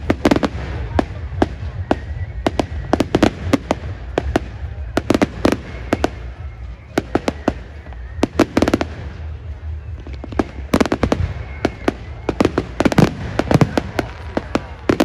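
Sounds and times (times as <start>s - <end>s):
fireworks bursting with bangs: 0.0s - 15.0s
rapid firework cracks: 10.0s - 15.0s.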